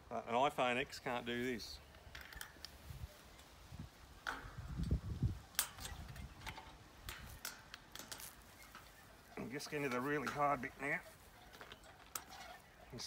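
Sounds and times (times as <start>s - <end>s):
metallic clicks of springs: 4.2s - 9.0s.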